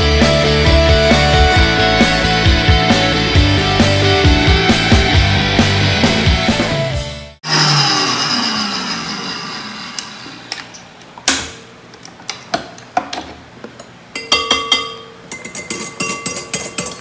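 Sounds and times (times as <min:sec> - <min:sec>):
mixer motor winding down: 0:00.0 - 0:10.8
metal whisk clinking on glass bowl: 0:14.2 - 0:17.0.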